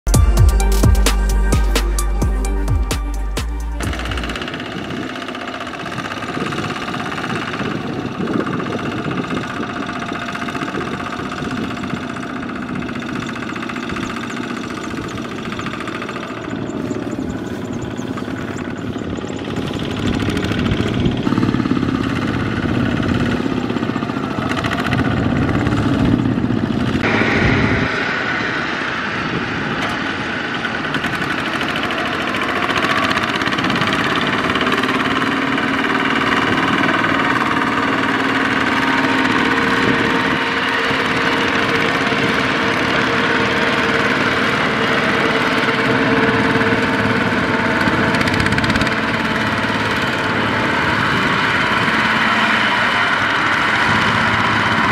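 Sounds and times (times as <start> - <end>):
diesel tractor engines running: 0.1 - 54.9.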